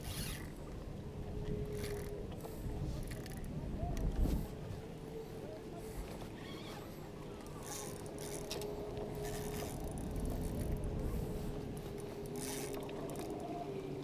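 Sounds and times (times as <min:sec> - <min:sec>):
fishing reel gears whirring: 0:00.0 - 0:00.7, 0:01.6 - 0:02.2, 0:03.0 - 0:03.5, 0:07.4 - 0:14.0
steady low hum: 0:00.0 - 0:14.0.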